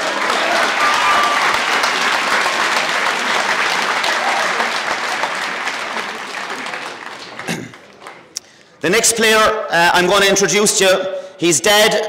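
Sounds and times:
crowd applauding: 0.0 - 8.8.

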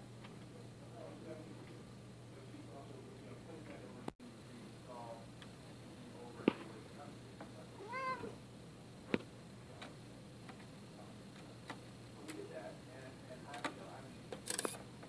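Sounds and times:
cat meowing: 7.8 - 8.4.

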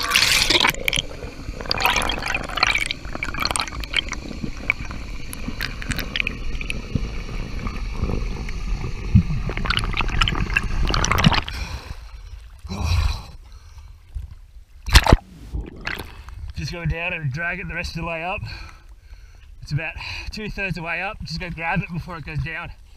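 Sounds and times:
underwater clicks: 0.0 - 11.6, 14.8 - 16.6
underwater rushing and gurgling: 0.0 - 12.7, 14.9 - 16.5.

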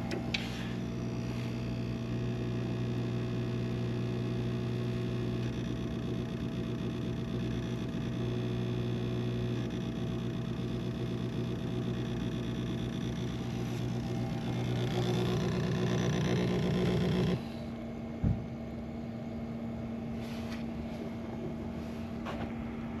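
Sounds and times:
appliance electrical hum and whine: 0.0 - 23.0
thump: 18.2 - 18.4.

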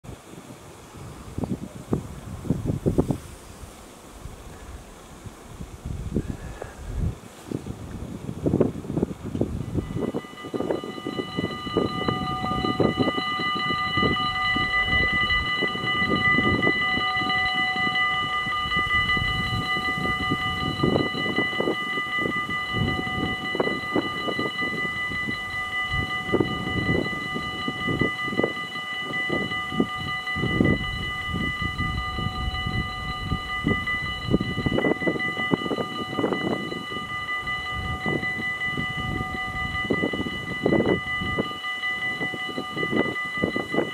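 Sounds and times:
wind buffeting microphone: 0.0 - 43.9
level crossing bell ringing: 9.7 - 43.9.

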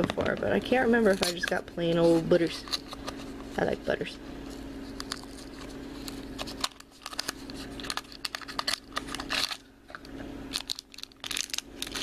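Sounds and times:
foil bag crinkling and tearing: 5.1 - 12.0.

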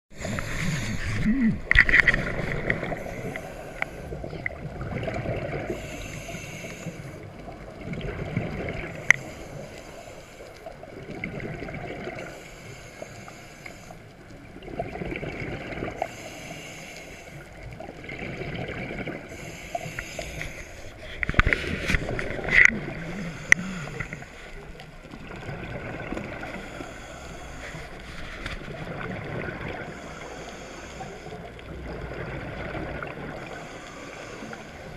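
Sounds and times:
exhaled air bubbling underwater: 0.1 - 34.9
regulator hissing inhale: 0.2 - 1.2, 2.8 - 4.2, 5.7 - 7.3, 8.9 - 10.8, 12.2 - 14.1, 16.0 - 17.6, 19.3 - 22.0, 23.0 - 24.8, 26.4 - 28.6, 29.9 - 31.7, 33.4 - 34.9.

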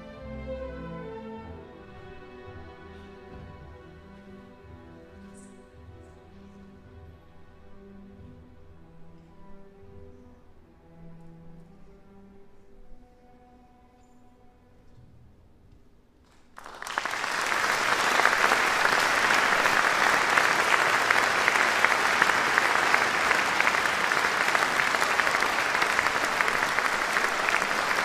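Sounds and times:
audience applause: 16.6 - 28.0.

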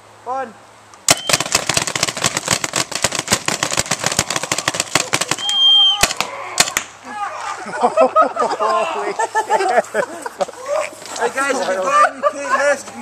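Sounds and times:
loud whistle blast: 1.1 - 1.4, 5.4 - 6.2
paintball markers firing: 1.1 - 7.0.

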